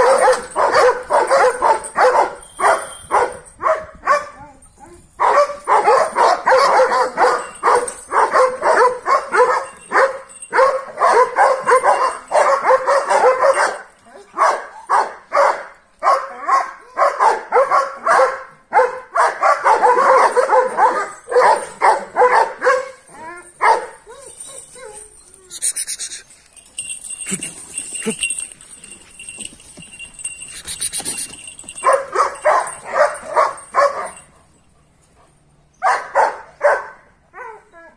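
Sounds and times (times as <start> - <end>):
dogs barking furiously: 0.0 - 4.5, 5.1 - 25.3, 26.6 - 37.7.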